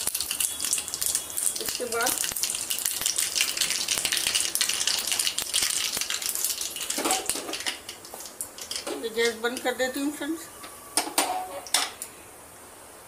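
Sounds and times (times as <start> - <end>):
seeds crackling and popping: 0.0 - 10.2
seeds sizzling in hot fat: 0.0 - 10.9.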